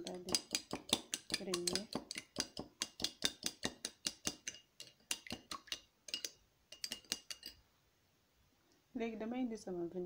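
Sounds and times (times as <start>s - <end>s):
utensil clinking against ceramic bowl: 0.0s - 7.6s.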